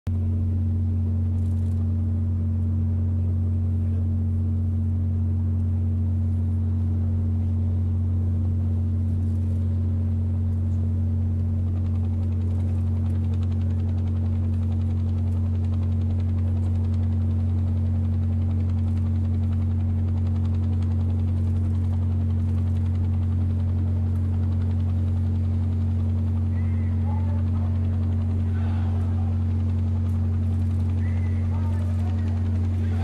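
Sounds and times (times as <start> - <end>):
ship engines humming: 3.1 - 33.0.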